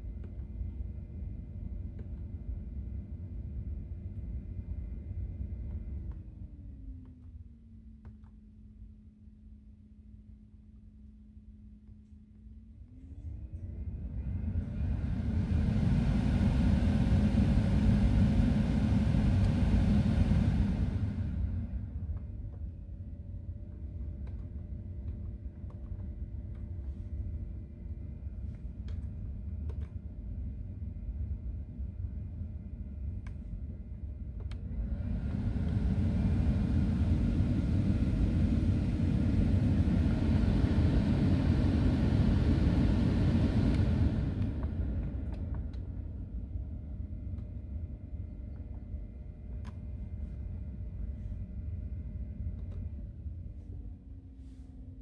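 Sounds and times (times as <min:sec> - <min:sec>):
car blower fan rushing air: 0:12.8 - 0:55.0.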